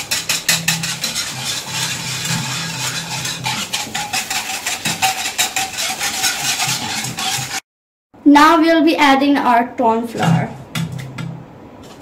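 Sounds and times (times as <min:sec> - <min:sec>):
whisk scraping metal saucepan: 0:00.0 - 0:07.6.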